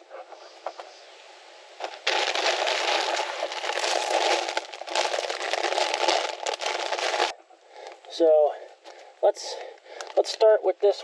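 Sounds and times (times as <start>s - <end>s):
cardboard rustling: 1.8s - 7.3s
plastic air pillows crinkling: 1.8s - 7.4s.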